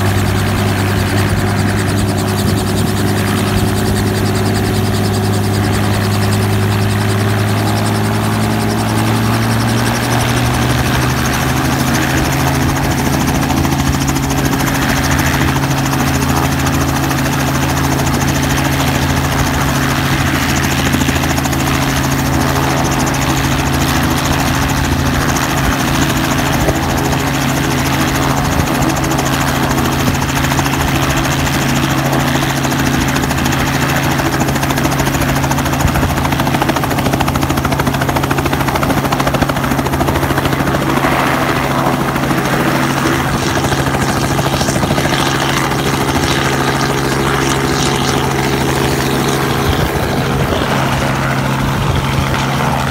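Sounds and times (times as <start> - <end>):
helicopter engine and rotor drone: 0.0 - 52.9.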